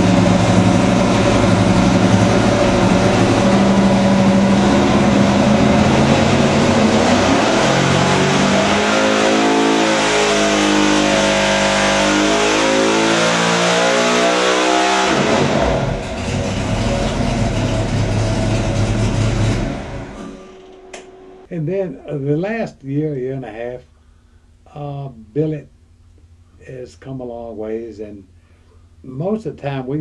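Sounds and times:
racing engine revving: 0.0s - 21.1s.

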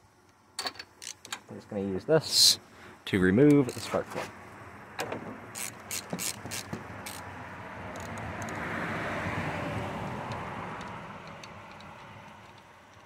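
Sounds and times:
wrench ticking: 5.5s - 7.3s, 7.9s - 8.6s, 10.0s - 13.0s.

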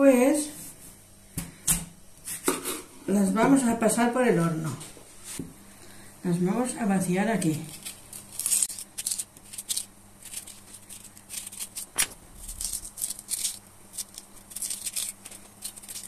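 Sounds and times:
knife scraping potato: 7.4s - 16.0s.

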